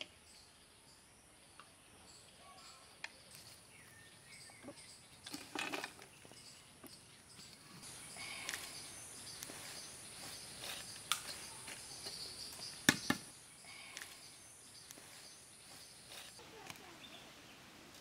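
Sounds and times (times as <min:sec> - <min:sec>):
high insect-like hum: 0:07.3 - 0:16.4.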